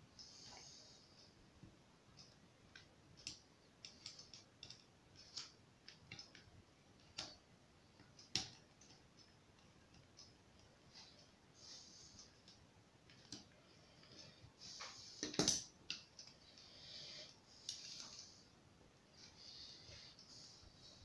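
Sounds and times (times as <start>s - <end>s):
small metallic clicks and taps: 2.1s - 7.4s, 8.0s - 11.3s.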